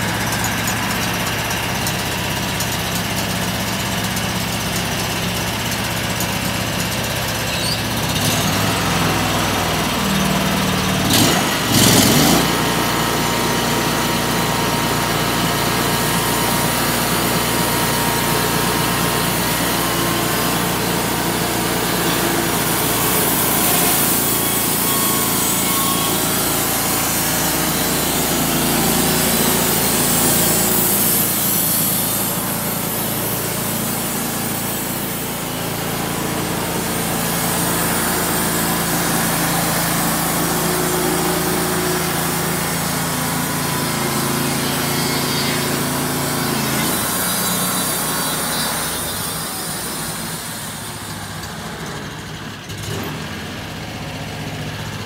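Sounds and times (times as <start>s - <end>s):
gasoline engine running: 0.0s - 47.8s
band blade sawing log: 8.1s - 51.1s.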